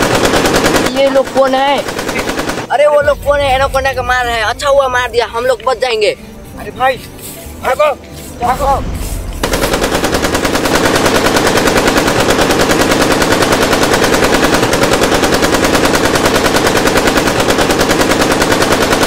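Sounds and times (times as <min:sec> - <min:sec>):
machine gun firing: 0:00.0 - 0:05.1, 0:09.2 - 0:19.0.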